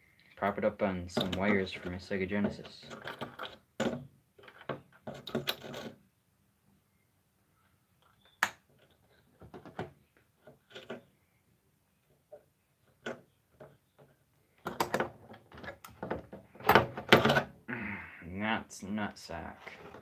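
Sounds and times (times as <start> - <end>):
hard objects clicking and knocking: 1.1 - 6.0, 8.0 - 11.1, 12.2 - 17.6.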